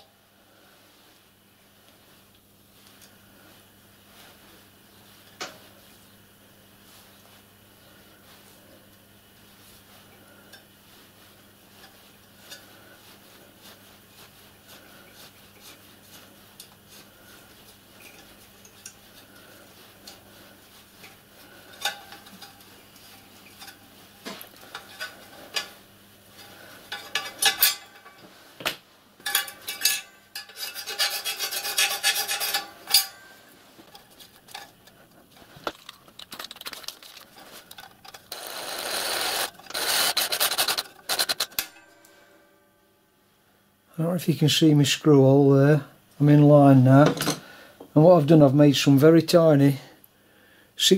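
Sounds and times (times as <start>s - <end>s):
metal clinks and scraping: 26.4s - 28.3s, 29.2s - 35.0s, 35.7s - 42.6s.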